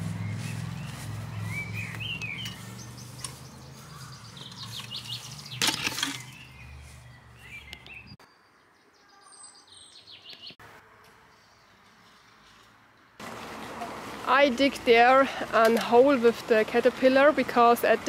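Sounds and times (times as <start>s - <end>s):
small birds chirping: 0.0s - 10.6s.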